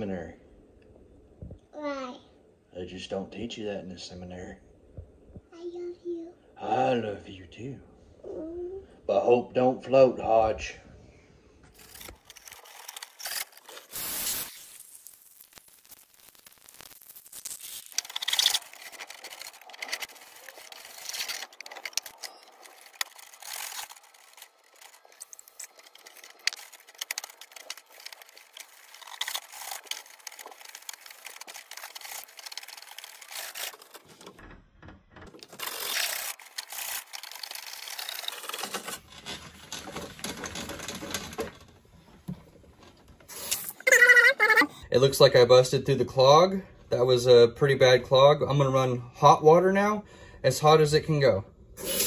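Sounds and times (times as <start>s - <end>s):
drain snake cable scraping: 11.7s - 43.8s.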